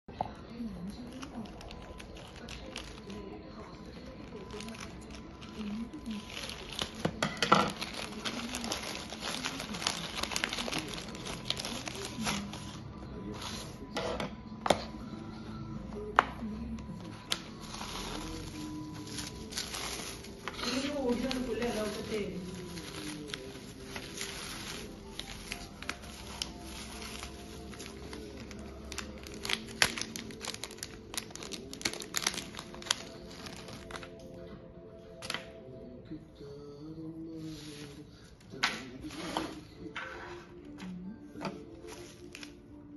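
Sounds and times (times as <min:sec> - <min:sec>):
bubble wrap crackling: 0:00.6 - 0:13.8, 0:17.3 - 0:34.3
plastic bag crinkling: 0:00.9 - 0:12.8, 0:17.5 - 0:34.2.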